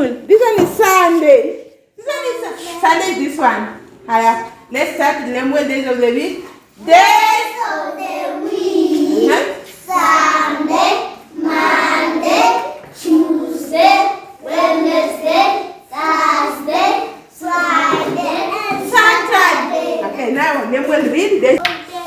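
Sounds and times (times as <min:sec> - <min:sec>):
children singing a chant: 0:06.8 - 0:20.1.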